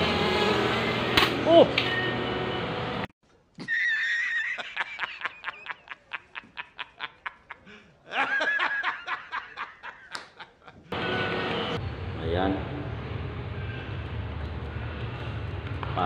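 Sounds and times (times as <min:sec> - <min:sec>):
man laughing hard: 0:03.6 - 0:10.9.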